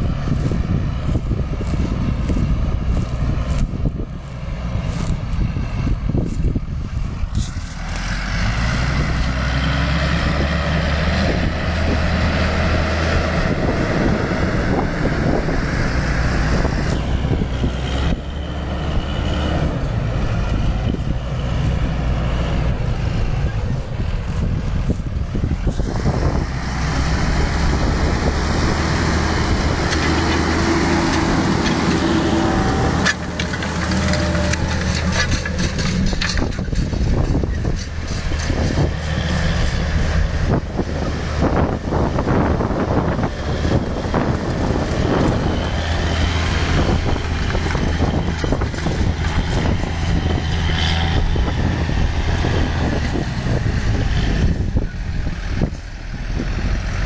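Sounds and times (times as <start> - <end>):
tractor diesel engine under load: 0.0 - 57.0
harrow knocks and rattles: 29.8 - 39.8.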